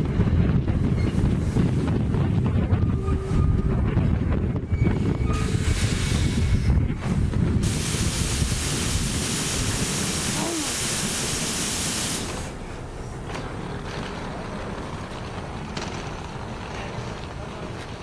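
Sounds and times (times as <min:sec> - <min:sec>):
compressed air hissing from train: 0:05.4 - 0:06.7, 0:07.6 - 0:12.6.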